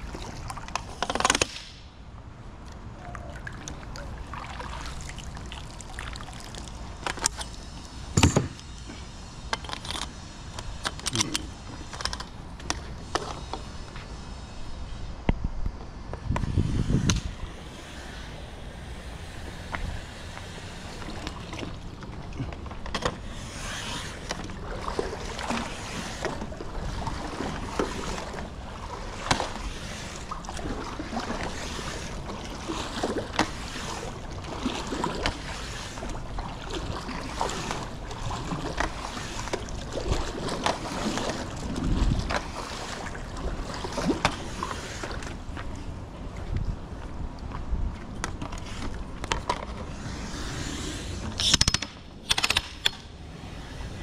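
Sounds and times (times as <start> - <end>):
pool water sloshing and splashing: 0.0 - 15.2, 17.2 - 54.0
sharp clicks and knocks: 51.4 - 53.0.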